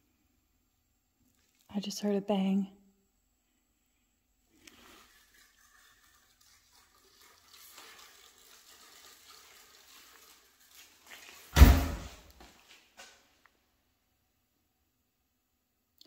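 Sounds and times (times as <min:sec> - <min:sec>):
faint rustling and crackling: 0:04.5 - 0:13.5
loud sudden thump: 0:11.6 - 0:12.2.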